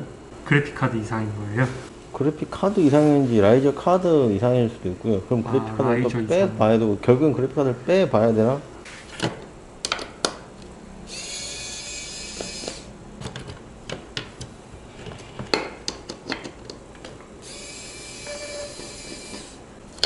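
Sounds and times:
electric screwdriver whining: 11.1 - 12.9, 17.4 - 19.6.

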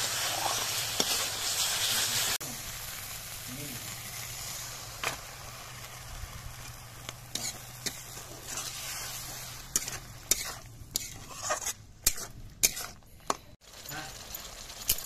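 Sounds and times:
fish and gravy sizzling: 0.0 - 15.0
metal spatula scraping a pan: 7.3 - 13.0.

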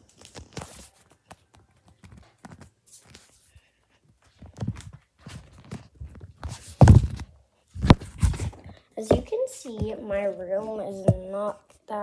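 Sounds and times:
soft irregular thumps: 1.3 - 12.0
footsteps: 4.2 - 12.0.

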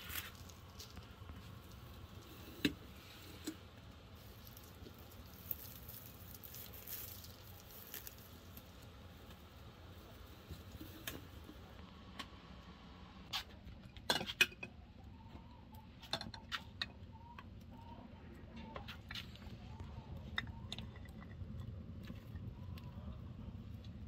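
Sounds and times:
dried herbs crumbled by hand: 0.0 - 11.8.

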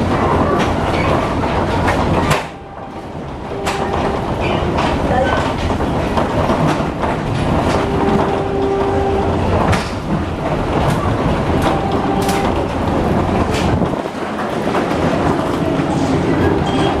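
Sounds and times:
train rumbling: 0.0 - 17.0
held train horn tone: 2.4 - 4.6, 7.6 - 9.5, 11.5 - 12.9, 15.9 - 17.0.

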